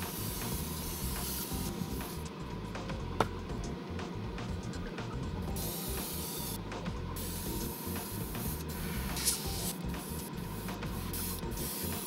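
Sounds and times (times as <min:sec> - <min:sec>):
airbrush spraying hiss: 0:00.0 - 0:02.3, 0:05.5 - 0:06.6, 0:07.2 - 0:12.0
soft background music: 0:00.0 - 0:12.0.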